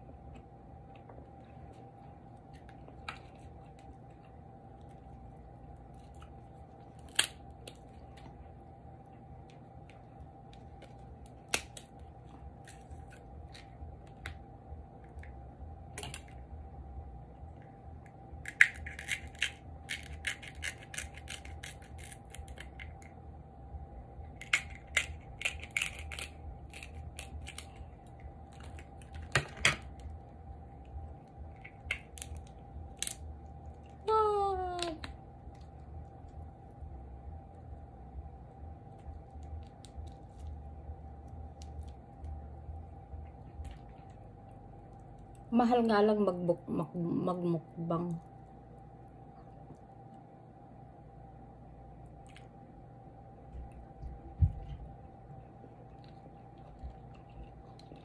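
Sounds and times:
faint hum: 0.0 - 58.0
crab shells cracking: 5.8 - 8.3, 9.4 - 15.4, 18.0 - 23.2, 24.2 - 33.9.

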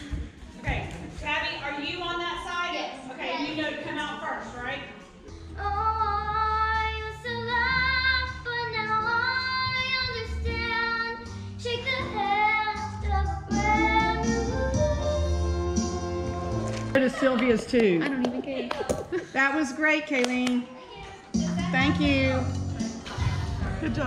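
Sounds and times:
instrumental accompaniment: 21.3 - 24.0.

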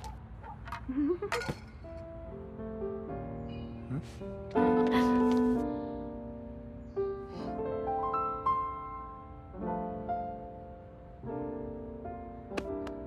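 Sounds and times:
piano chords and melody: 1.7 - 13.0.

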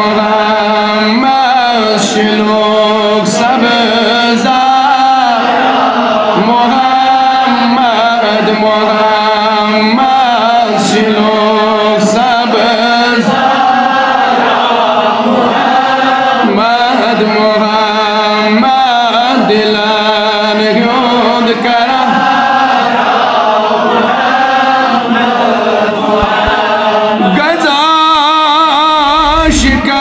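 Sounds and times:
man singing in chanting style: 0.0 - 30.0
steady low held note: 29.0 - 30.0.

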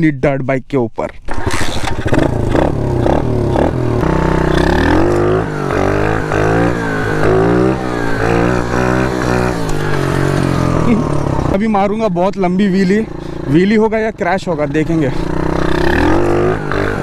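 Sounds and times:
dirt bike engine revving: 1.3 - 17.0.

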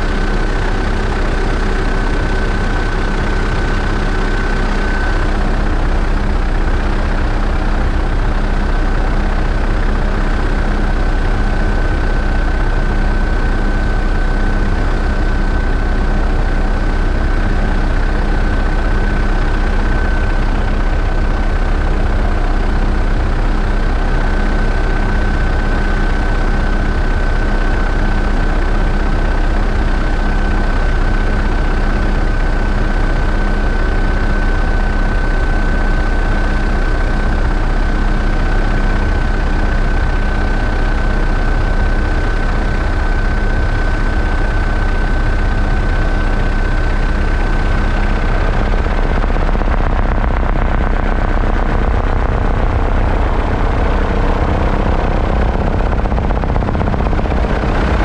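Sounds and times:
helicopter engine and rotor: 0.0 - 58.0
high-pitched whine: 41.6 - 58.0.

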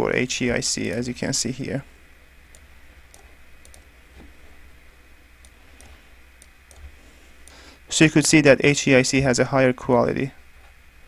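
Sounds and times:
low steady hum: 0.0 - 11.0
faint computer mouse clicks: 2.5 - 3.9, 5.4 - 7.6.

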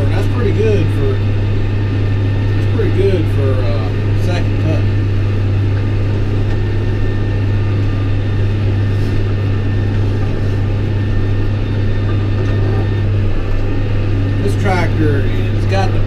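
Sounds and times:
tractor diesel engine drone: 0.0 - 16.0.

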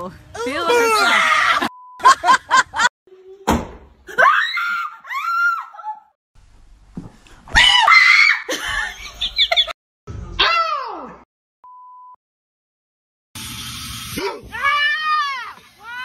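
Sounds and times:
people screaming: 0.5 - 1.7, 7.6 - 8.5, 14.4 - 16.0
people laughing: 2.0 - 2.9, 8.5 - 9.8.

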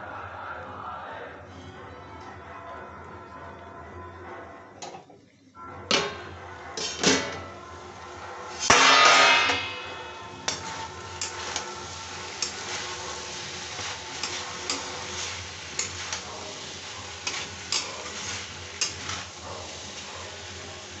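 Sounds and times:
metal spatula scraping the pan: 5.9 - 21.0
vegetables sizzling in a pan: 7.8 - 21.0.

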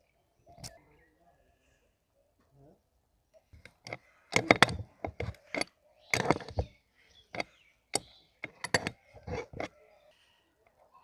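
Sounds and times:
wrench clicking on nut: 3.6 - 6.6, 8.4 - 9.7.

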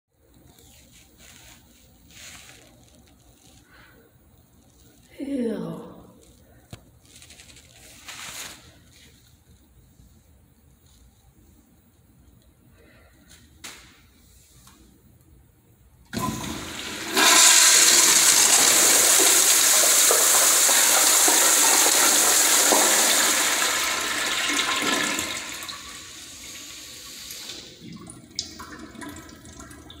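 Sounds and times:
toilet flushing: 16.1 - 30.0
water trickling as bowl refills: 19.0 - 30.0.

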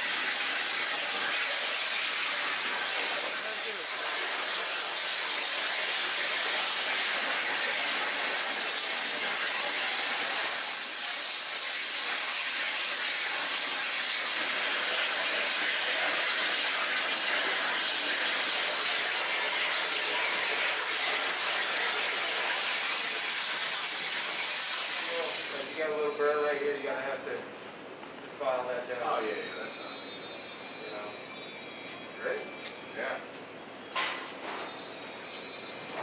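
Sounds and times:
high-pressure water jet hissing: 0.0 - 26.8.

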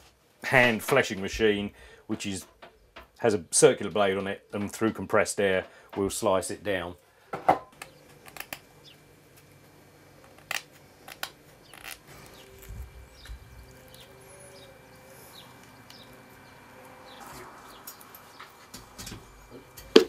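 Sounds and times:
low steady hum: 0.0 - 20.0
faint high chirp: 11.7 - 18.0.

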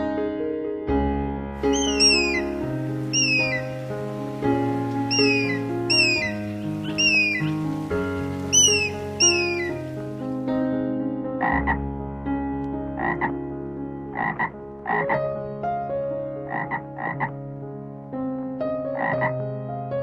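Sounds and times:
soft background music: 0.0 - 20.0
frog croaking: 1.6 - 10.2, 11.4 - 11.8, 13.0 - 13.4, 14.1 - 15.2, 16.5 - 17.4, 19.0 - 19.4.

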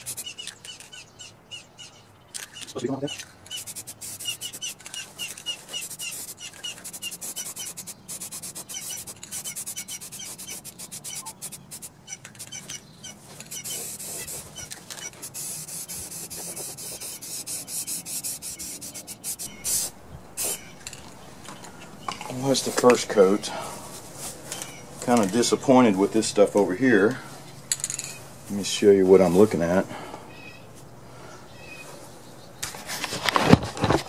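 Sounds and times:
aerosol spray can hissing: 0.0 - 0.3, 3.5 - 4.8, 5.7 - 12.6, 13.5 - 20.7.

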